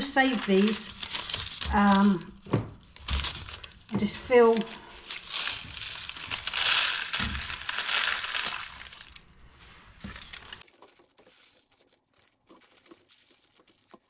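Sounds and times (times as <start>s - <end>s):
paper rustling: 0.0s - 2.3s, 2.9s - 14.0s
dry rice pouring onto paper: 5.4s - 9.2s.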